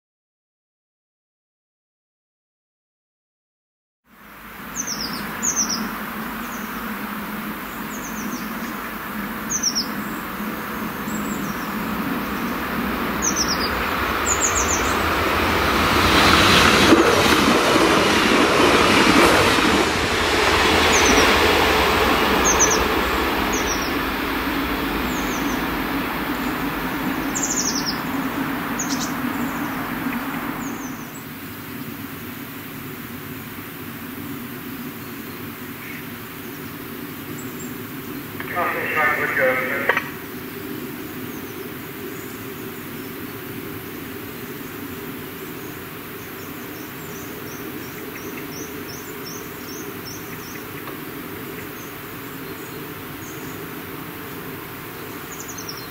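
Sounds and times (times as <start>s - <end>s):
passing train rumble: 4.1s - 34.9s, 36.6s - 55.9s
songbirds chirping: 7.6s - 15.3s, 22.3s - 31.9s, 37.3s - 55.9s.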